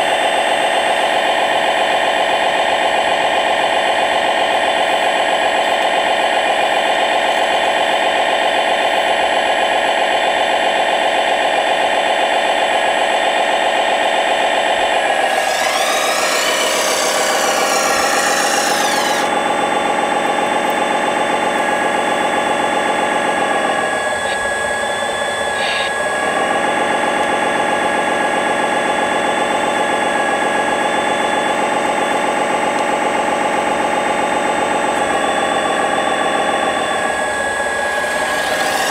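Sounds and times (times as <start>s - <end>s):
harsh whine and hiss: 15.1s - 19.6s, 35.1s - 38.9s.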